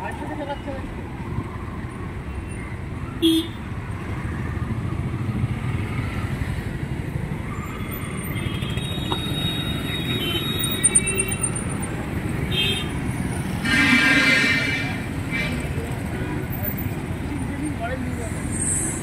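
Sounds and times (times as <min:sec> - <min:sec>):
street traffic: 0:00.0 - 0:19.0
vehicle horns honking: 0:13.6 - 0:16.4.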